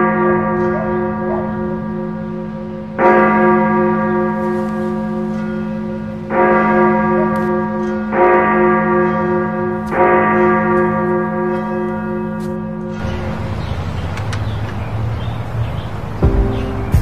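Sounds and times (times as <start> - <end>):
steady low hum: 13.0 - 17.0.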